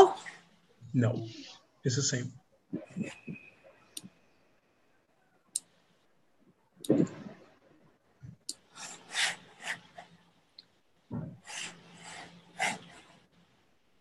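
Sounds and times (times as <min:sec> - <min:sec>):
scratchy rubbing: 0:08.6 - 0:10.3, 0:11.2 - 0:13.6.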